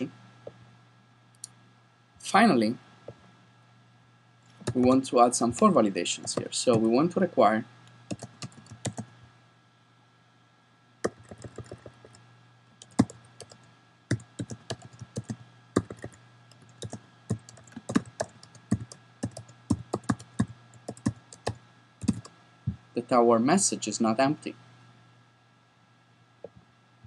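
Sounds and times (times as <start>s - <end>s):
computer keyboard typing: 4.6s - 5.0s, 6.2s - 6.9s, 8.1s - 9.1s, 11.0s - 12.2s, 12.8s - 22.3s.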